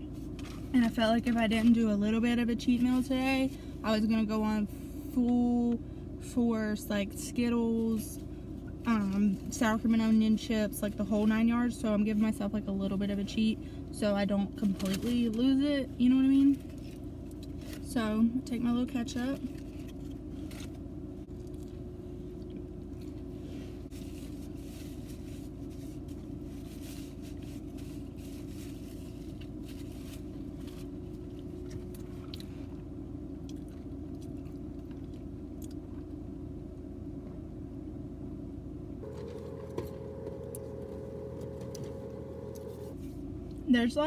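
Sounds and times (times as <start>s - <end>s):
low hum in car cabin: 0.0s - 44.0s
higher electronic tone: 39.0s - 43.0s.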